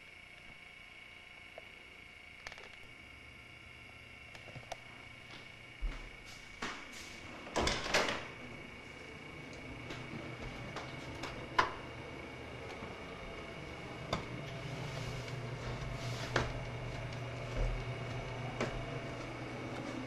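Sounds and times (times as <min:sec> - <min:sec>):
low hum: 0:00.0 - 0:20.0
footsteps on stairs: 0:05.3 - 0:07.2, 0:09.5 - 0:12.0, 0:12.6 - 0:20.0.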